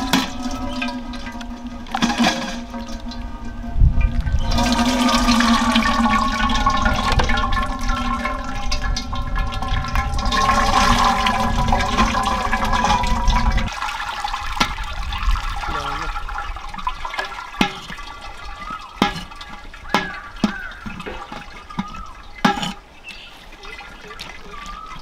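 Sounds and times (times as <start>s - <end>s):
steady droning tone: 0.0s - 13.7s
steel ladle scraping mesh: 0.0s - 13.7s, 17.2s - 23.3s.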